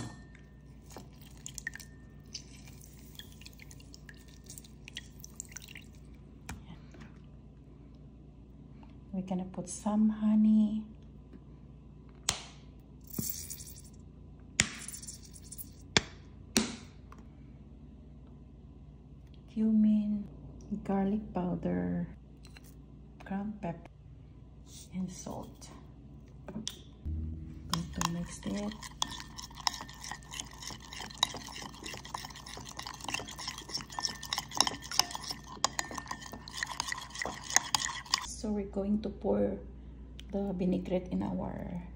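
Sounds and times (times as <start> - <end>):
wet stirring of dressing: 0.6 - 6.1, 27.7 - 38.3
spoon clinking against ceramic bowl: 27.7 - 38.3.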